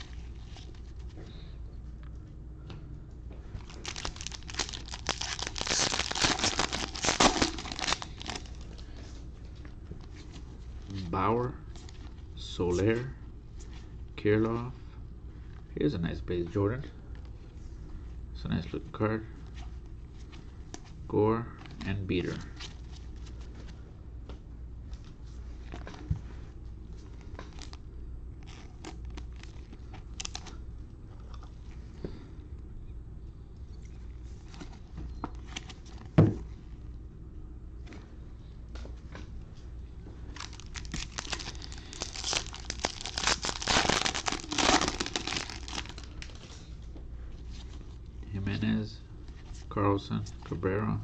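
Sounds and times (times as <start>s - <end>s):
low steady hum: 0.0s - 51.0s
wrapper tearing and crinkling: 3.6s - 8.7s, 28.4s - 30.5s, 40.3s - 46.4s
card rustling: 3.6s - 8.8s.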